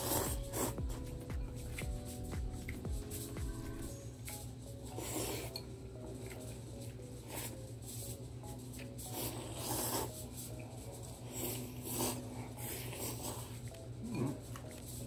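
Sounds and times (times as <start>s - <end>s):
noodles being slurped: 0.0s - 1.8s, 4.9s - 5.6s, 9.1s - 10.2s, 11.1s - 14.4s.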